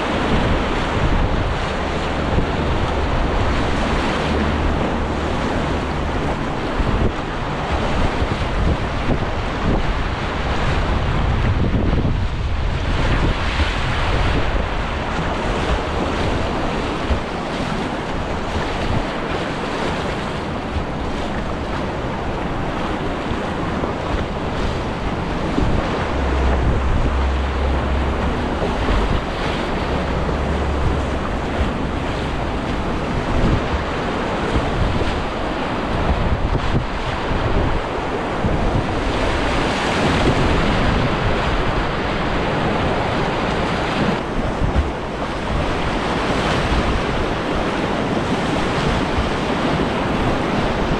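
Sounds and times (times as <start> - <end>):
river rapids rushing and splashing: 0.0 - 50.9
wind buffeting microphone: 0.0 - 50.9.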